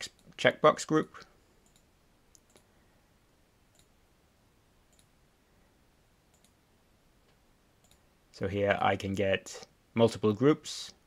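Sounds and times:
computer mouse clicks: 1.2 - 2.7, 3.7 - 4.0, 4.9 - 5.2, 6.3 - 6.6, 7.3 - 8.1.

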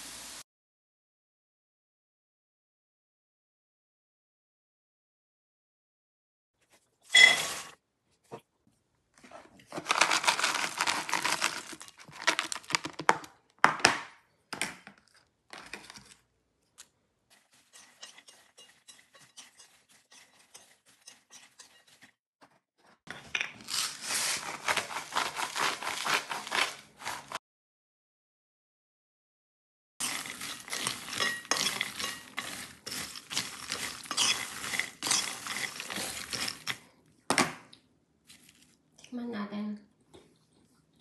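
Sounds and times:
peanuts rattling and rustling: 9.8 - 13.1, 23.6 - 27.4, 30.0 - 36.8
salt grinder twisting: 30.0 - 36.8.

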